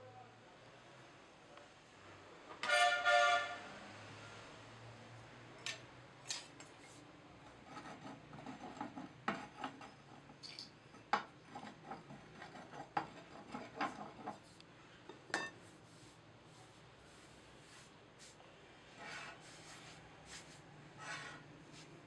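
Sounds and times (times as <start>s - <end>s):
metal bar knocking and scraping: 7.4s - 10.3s, 10.9s - 14.5s.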